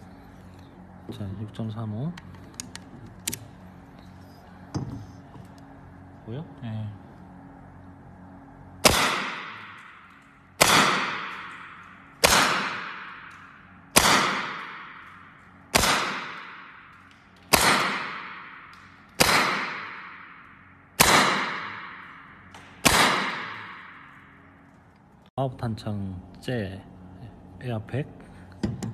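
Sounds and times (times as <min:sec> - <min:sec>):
air rifle shots: 0:08.8 - 0:10.0, 0:10.6 - 0:15.1, 0:15.7 - 0:20.4, 0:21.0 - 0:24.1.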